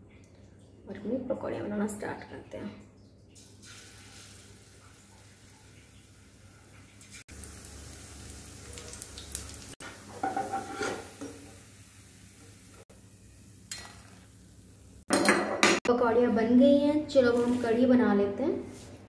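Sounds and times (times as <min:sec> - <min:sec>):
batter frying in hot oil: 0:03.4 - 0:15.1
metal spoon scraping pan: 0:10.2 - 0:11.3.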